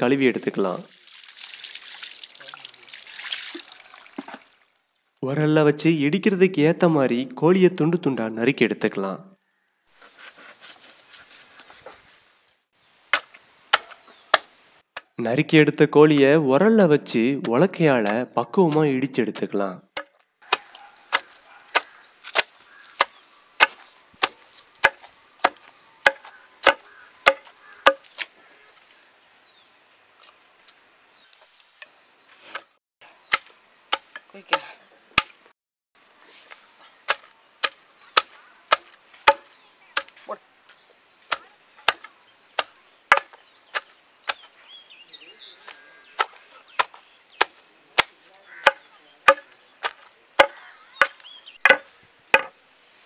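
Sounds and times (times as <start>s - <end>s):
pestle pounding in stone mortar: 21.2s - 28.1s, 46.2s - 52.6s.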